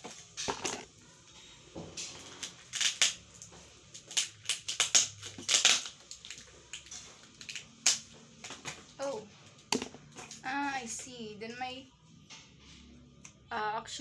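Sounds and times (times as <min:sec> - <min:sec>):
scissors snipping packaging: 0:04.0 - 0:06.4
packaging crinkling: 0:04.0 - 0:08.1.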